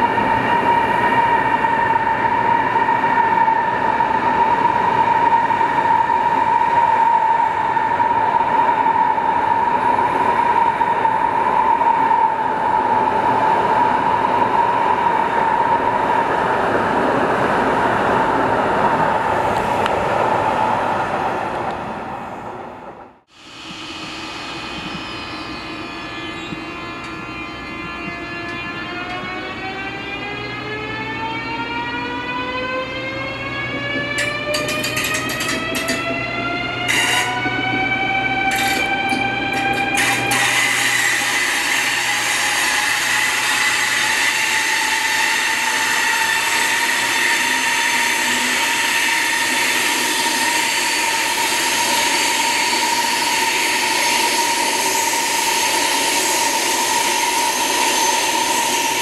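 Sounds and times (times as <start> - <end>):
train running noise: 0.0 - 59.0
train traction motors whining: 23.4 - 59.0.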